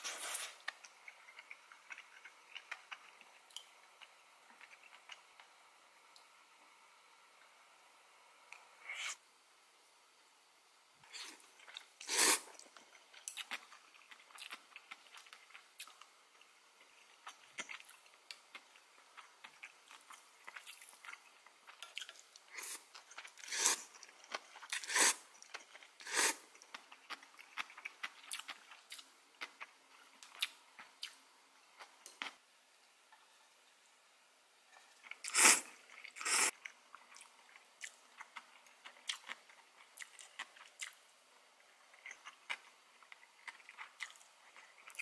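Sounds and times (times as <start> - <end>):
person chewing and crunching: 0.0 - 5.2, 11.1 - 31.2, 35.0 - 41.0, 41.6 - 45.0.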